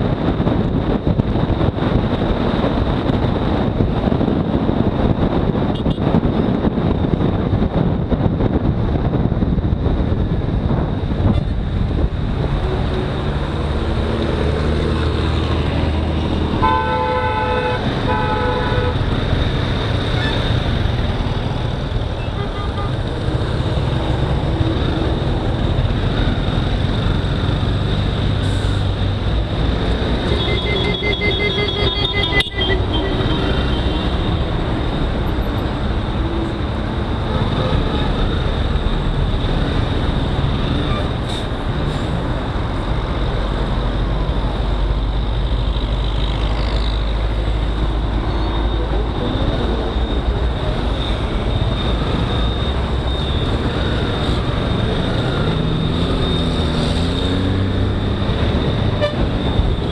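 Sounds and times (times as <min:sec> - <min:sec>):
road noise: 0:00.0 - 0:59.9
vehicle horn: 0:16.6 - 0:19.0, 0:30.2 - 0:34.1, 0:59.0 - 0:59.3.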